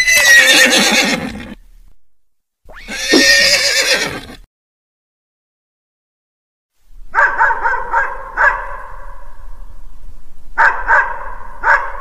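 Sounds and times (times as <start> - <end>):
dogs barking: 7.1 - 9.0, 10.6 - 12.0.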